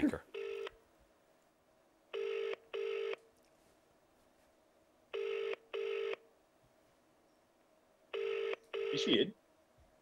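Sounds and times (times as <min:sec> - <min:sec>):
phone ringing tone: 0:00.3 - 0:00.8, 0:02.1 - 0:03.2, 0:05.1 - 0:06.2, 0:08.1 - 0:09.2.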